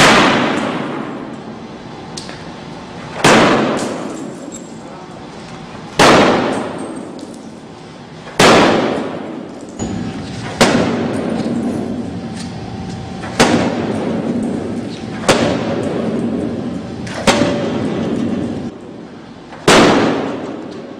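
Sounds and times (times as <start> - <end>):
sledgehammer striking glass: 9.8 - 12.0, 13.2 - 14.6.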